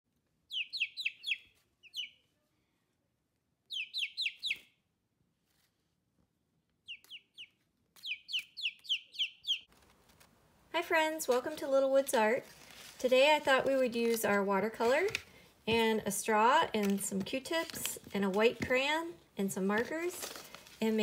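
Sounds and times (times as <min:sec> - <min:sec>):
chicks peeping: 0:00.5 - 0:02.3, 0:03.7 - 0:04.7, 0:06.8 - 0:09.7.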